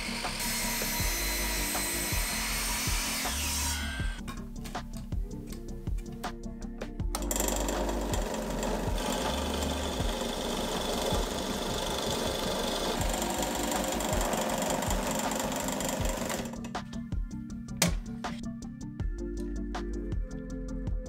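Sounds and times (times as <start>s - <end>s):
bit cutting through wood: 0.0s - 4.2s, 7.2s - 16.6s
drill press motor hum: 0.0s - 4.2s, 7.1s - 16.8s.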